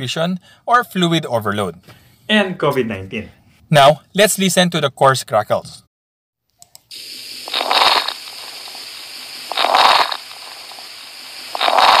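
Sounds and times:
noisy breaths through stethoscope: 6.9 - 12.0
steady hiss: 6.9 - 12.0
lung crackles: 7.0 - 12.0.

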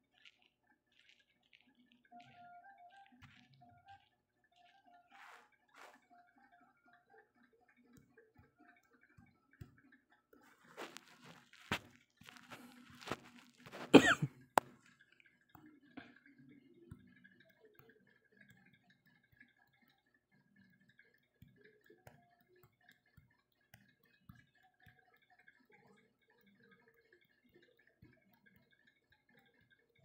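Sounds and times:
person coughing: 13.8 - 14.4
faint scattered ticks: 14.6 - 30.0.

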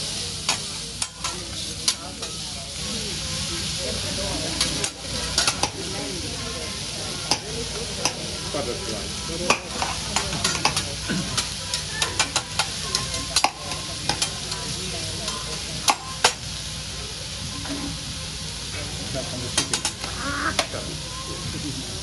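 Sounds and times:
vegetables sizzling on griddle: 0.0 - 22.0
metal spatulas clacking on steel: 4.6 - 5.8, 9.5 - 10.8, 11.4 - 14.3.

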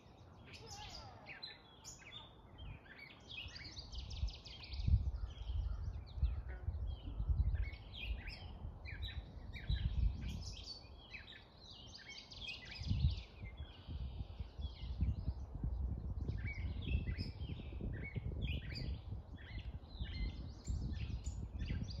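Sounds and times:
songbirds singing: 0.0 - 22.0.

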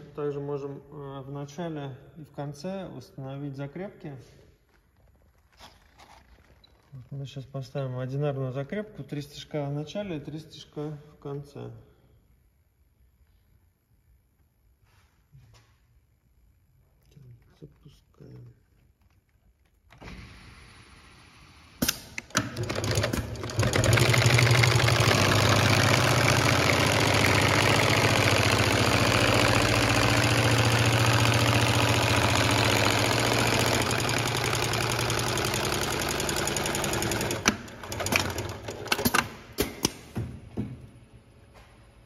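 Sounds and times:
sewing machine clicks: 21.8 - 40.0
sewing machine stitching: 22.3 - 39.3.

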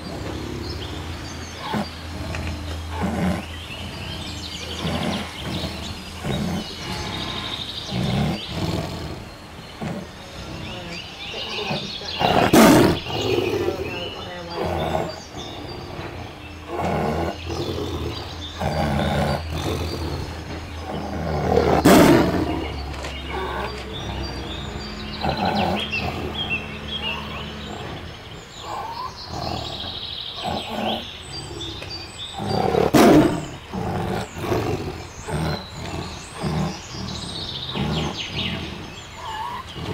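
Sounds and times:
small birds chirping: 0.0 - 39.9
tiger roaring and growling: 0.0 - 39.9.

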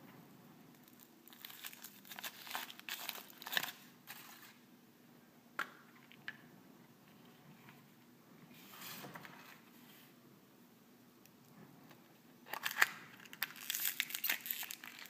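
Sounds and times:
foil wrapper crinkling: 0.8 - 4.6, 12.5 - 15.0.

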